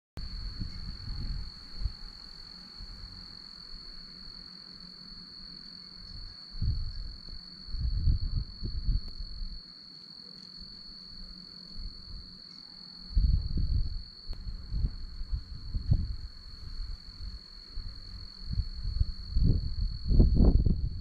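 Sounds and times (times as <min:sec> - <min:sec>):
crickets trilling: 0:00.2 - 0:21.0
low uneven rumbles: 0:13.2 - 0:21.0.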